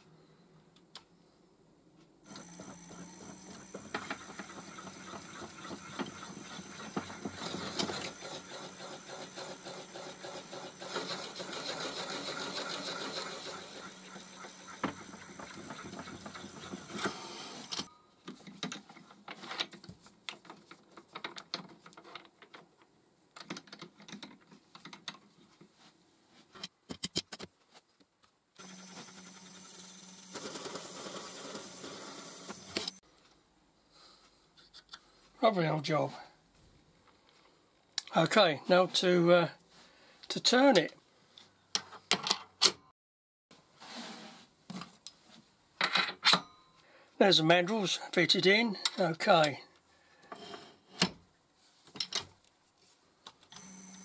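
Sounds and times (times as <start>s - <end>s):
lathe motor whining: 2.3s - 17.9s
trimmer cutting wood: 2.3s - 17.9s.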